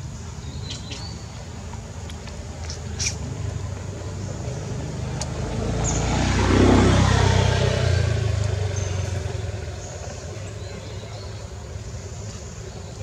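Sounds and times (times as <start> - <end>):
vehicle engine passing by: 2.8 - 12.6.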